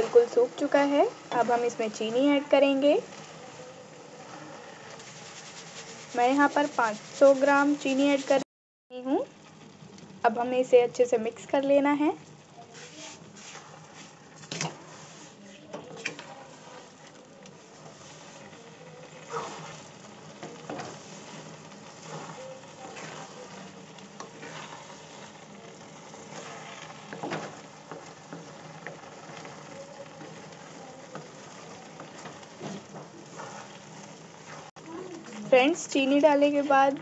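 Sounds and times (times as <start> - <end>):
low cooking sizzle: 0.0 - 37.0
spatula scraping metal pan: 12.8 - 17.1, 19.2 - 30.5, 31.1 - 34.7.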